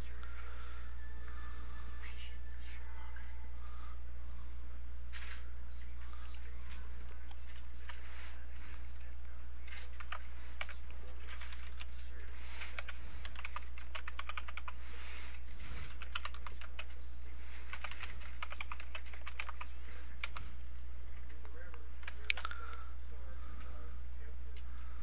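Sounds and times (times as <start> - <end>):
steady low hum: 0.0 - 25.0
keyboard typing: 9.7 - 11.9, 12.6 - 14.8, 15.8 - 17.0, 17.6 - 20.5.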